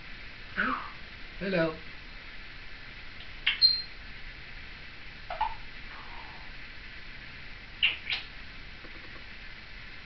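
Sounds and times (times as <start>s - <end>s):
parrot call rising in pitch: 0.6s - 1.0s.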